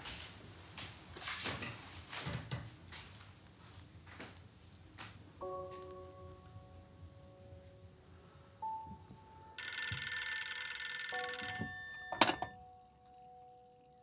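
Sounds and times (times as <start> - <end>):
telephone bell ringing: 9.6 - 12.6.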